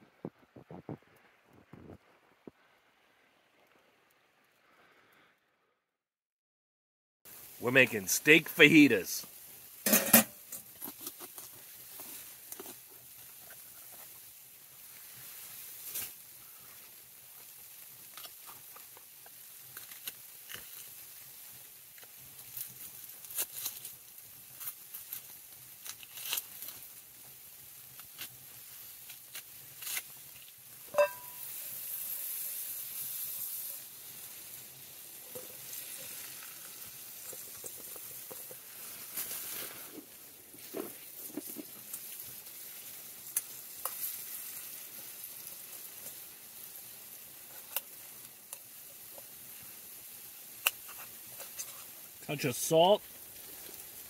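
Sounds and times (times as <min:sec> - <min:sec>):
steak sizzling in a pan: 0:07.3 - 0:07.6, 0:08.2 - 0:54.0
sharp ringing clink: 0:31.0 - 0:31.4.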